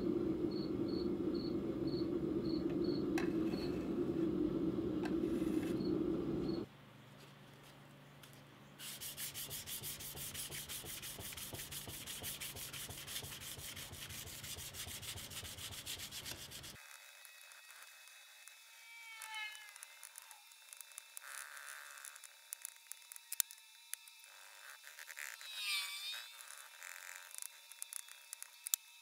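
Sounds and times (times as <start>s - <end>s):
crickets chirping: 0.0s - 6.7s
low rumble: 0.0s - 6.7s
sandpaper sanding steel blade: 8.8s - 16.8s.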